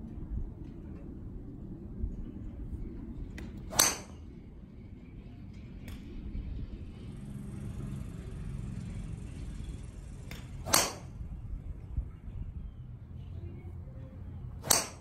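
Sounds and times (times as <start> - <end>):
golf club striking ball: 3.7 - 4.2, 10.3 - 11.3, 14.6 - 15.0.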